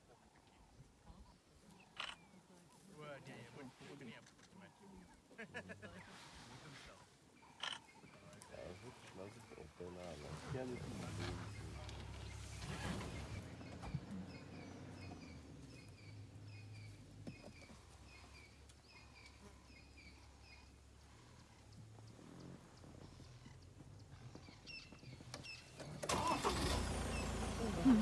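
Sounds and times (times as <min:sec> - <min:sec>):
bird chirping: 0:07.3 - 0:26.1
vehicle engine idling: 0:08.1 - 0:28.0.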